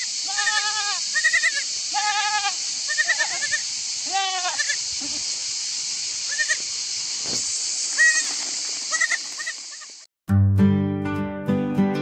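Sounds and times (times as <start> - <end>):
goat kid bleating: 0.0 - 5.3, 6.3 - 6.6, 8.0 - 9.9
steady high hiss: 0.0 - 10.1.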